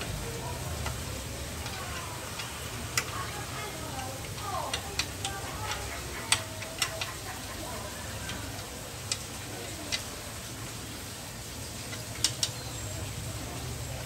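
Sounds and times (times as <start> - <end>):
sharp metal clicks and taps: 0.8 - 1.0, 1.6 - 3.2, 4.0 - 7.6, 8.2 - 10.1, 11.9 - 12.7.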